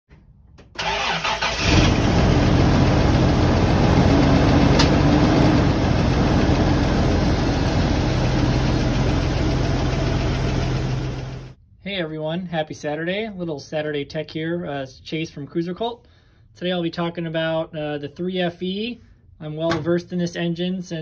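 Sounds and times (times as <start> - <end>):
engine cranking and idling: 0.6 - 11.6.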